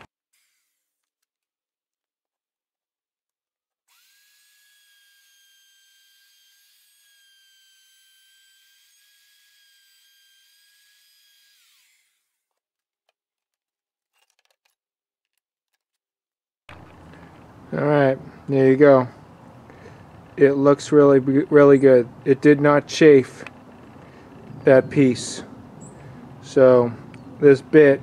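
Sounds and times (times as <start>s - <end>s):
router motor whine: 0.0s - 1.1s, 3.9s - 12.4s.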